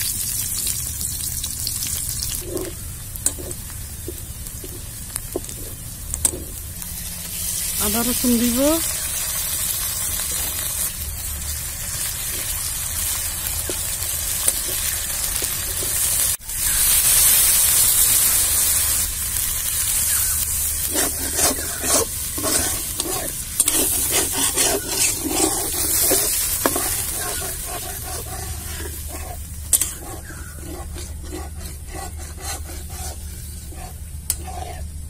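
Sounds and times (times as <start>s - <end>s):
onions sizzling in hot oil: 0.0s - 35.0s
metal spatula scraping pan: 20.8s - 34.9s.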